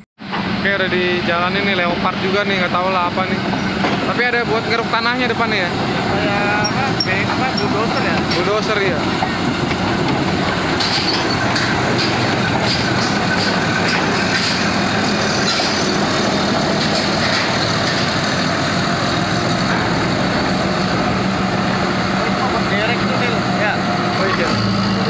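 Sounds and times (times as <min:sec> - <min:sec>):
heavy diesel engines running: 0:00.2 - 0:25.0.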